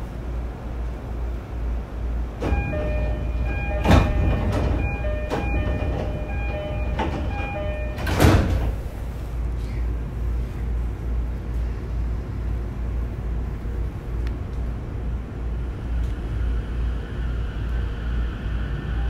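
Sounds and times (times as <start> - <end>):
train hum: 0.0 - 19.0
sliding doors clunking shut: 2.3 - 9.0
electronic door chime: 2.4 - 8.6.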